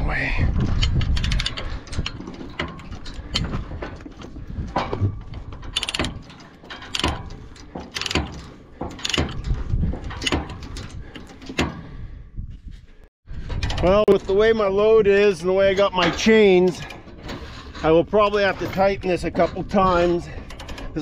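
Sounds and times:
chain rattling against steel: 0.6 - 11.7
metal ratcheting clicks: 0.7 - 3.6, 5.6 - 9.5.

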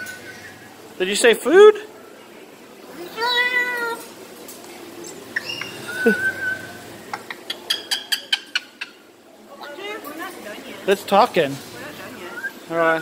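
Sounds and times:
cockatoo whistle: 5.4 - 6.8.

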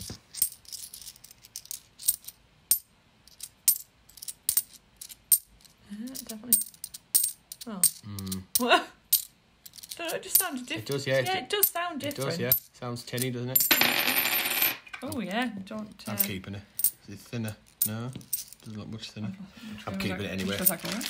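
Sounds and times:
coins clinking in hand: 0.0 - 8.3, 9.1 - 14.9, 17.7 - 18.7, 20.4 - 21.0.

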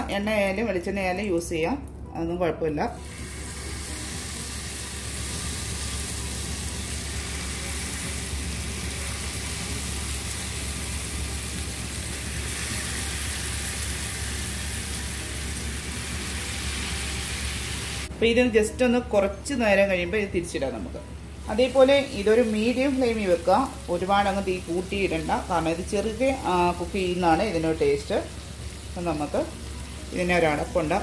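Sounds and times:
butter sizzling in grill pan: 3.0 - 18.1, 25.4 - 31.0.

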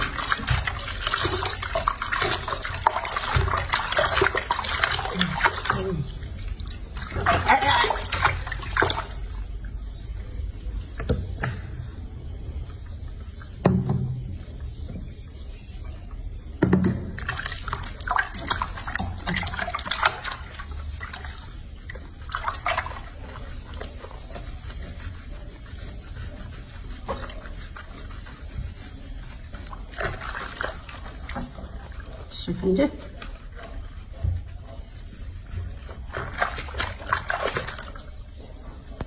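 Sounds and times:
water splashing in sink: 0.0 - 10.2, 16.6 - 39.0
water drips: 0.0 - 14.9.

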